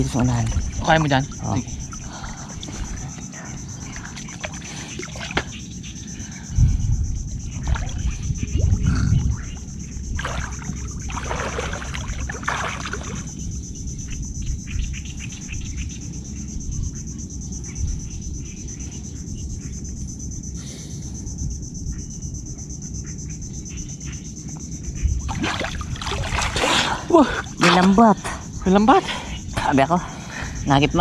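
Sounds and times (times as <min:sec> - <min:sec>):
continuous low rumble: 0:00.0 - 0:31.0
high-pitched insect trill: 0:00.0 - 0:31.0
splashing in water and mud: 0:03.8 - 0:05.6, 0:07.5 - 0:08.9, 0:10.1 - 0:13.4, 0:25.2 - 0:28.2.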